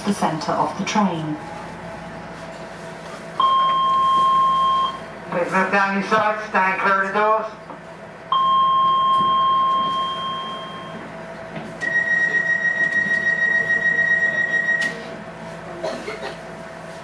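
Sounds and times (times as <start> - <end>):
high pulsing warning tone: 11.8 - 15.0.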